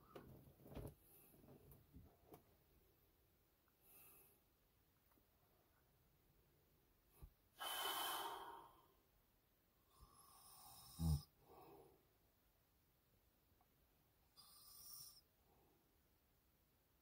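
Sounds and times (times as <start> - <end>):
man breathing heavily: 7.6 - 8.8
man snoring: 10.0 - 11.4, 14.4 - 15.2.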